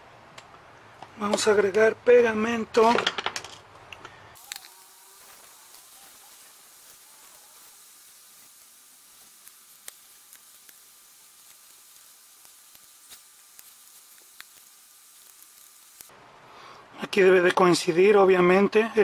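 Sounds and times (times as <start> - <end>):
faint steady hiss: 3.9 - 19.0.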